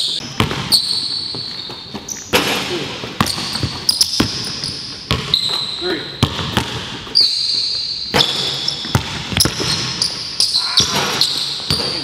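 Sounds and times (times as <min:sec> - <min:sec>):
sneakers squeaking: 0:00.0 - 0:12.0
basketball bouncing on hardwood: 0:03.2 - 0:05.3, 0:06.2 - 0:06.9, 0:08.2 - 0:09.9.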